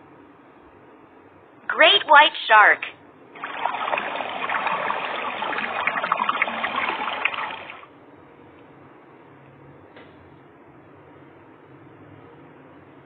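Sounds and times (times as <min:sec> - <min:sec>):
water trickling and splashing: 0:03.4 - 0:07.8.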